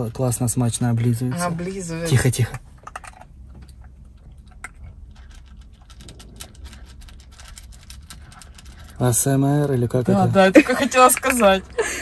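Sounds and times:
dog eating and licking lips: 1.0s - 10.3s.

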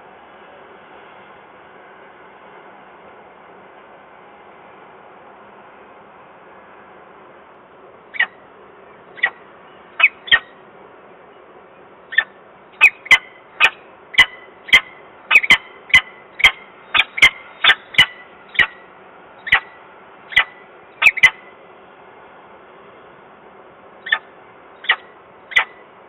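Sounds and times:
falcon calling harshly: 8.1s - 8.4s, 10.0s - 10.5s, 12.1s - 18.8s, 19.4s - 19.7s, 20.3s - 21.4s, 24.0s - 25.8s.

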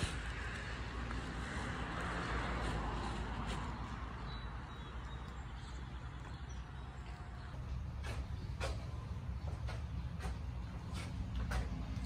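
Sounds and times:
vehicle passing by: 0.0s - 6.3s.

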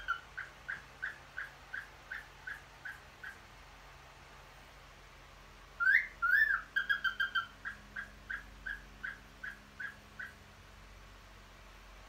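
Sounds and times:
cockatiel chirps: 0.0s - 3.4s, 5.8s - 10.4s
cockatiel wolf whistle: 5.8s - 7.5s.

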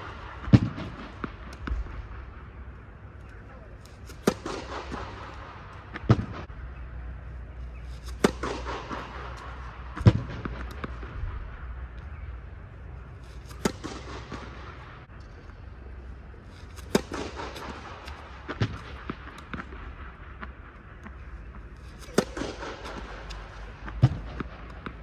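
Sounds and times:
steady low hum: 0.0s - 25.0s
tennis racket hitting balls: 3.9s - 6.4s, 7.7s - 11.1s, 13.2s - 15.1s, 16.6s - 19.6s, 21.8s - 25.0s.

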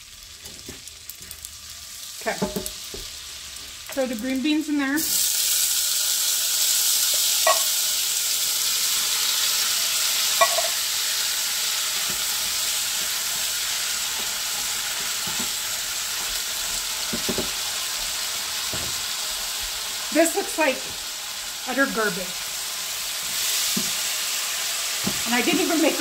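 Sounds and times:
beans frying in fat: 0.0s - 26.0s
butter sizzling in a skillet: 0.0s - 26.0s.

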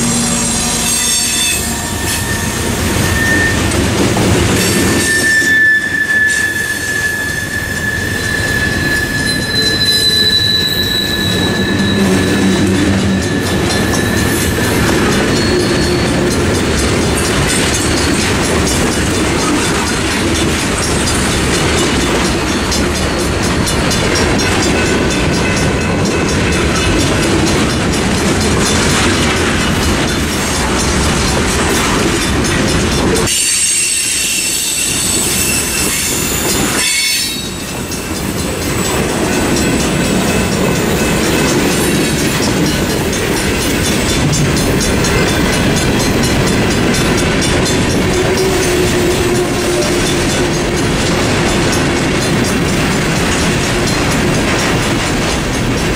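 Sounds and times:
wheel squeal: 0.0s - 20.0s, 33.2s - 38.9s
crossing bells ringing: 0.0s - 55.9s
freight train wheels clacking: 0.0s - 55.9s.

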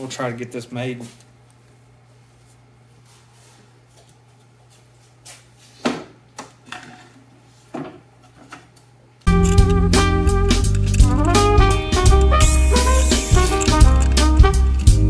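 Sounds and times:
steady low hum: 9.2s - 15.0s.

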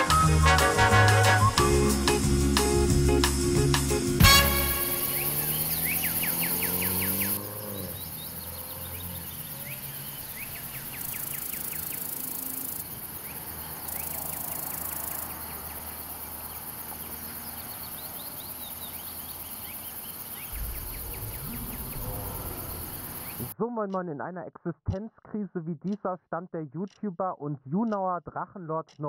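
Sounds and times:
music: 0.0s - 5.8s
background hiss: 0.0s - 23.5s
small birds chirping: 4.5s - 23.6s
low hum: 20.4s - 23.5s.

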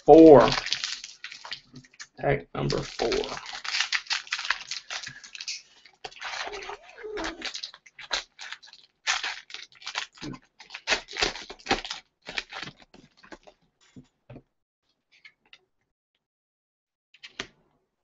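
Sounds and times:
wrapper tearing and crinkling: 0.3s - 13.5s.

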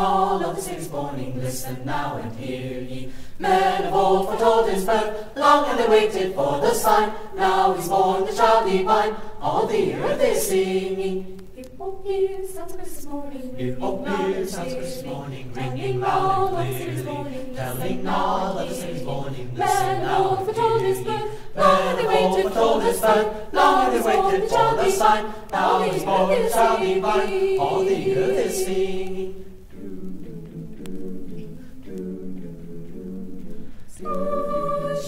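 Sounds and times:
mixed choir singing: 0.0s - 35.0s.

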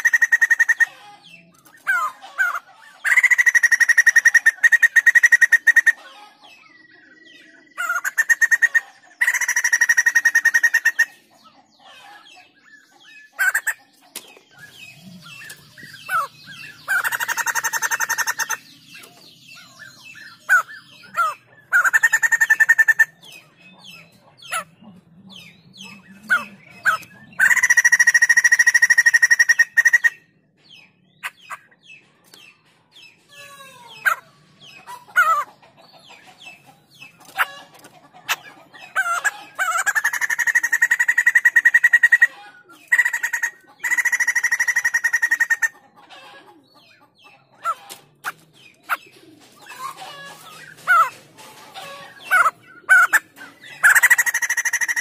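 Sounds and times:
bird cackling: 0.0s - 32.6s, 33.2s - 55.0s.

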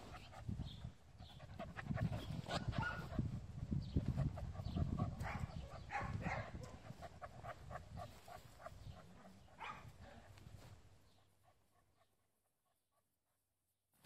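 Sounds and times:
dog panting: 0.0s - 3.3s, 4.0s - 10.3s.

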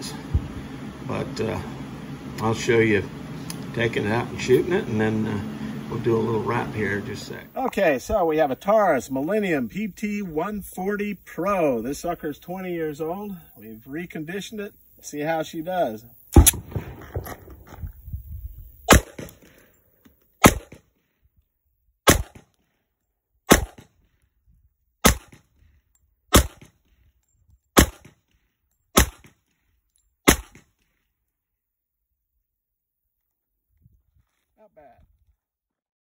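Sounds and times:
pistol shots: 16.3s - 17.7s, 18.9s - 19.5s, 20.4s - 20.8s, 22.0s - 22.5s, 23.5s - 23.9s, 25.0s - 25.4s, 26.3s - 26.8s, 27.8s - 28.2s, 29.0s - 29.4s, 30.2s - 30.7s.

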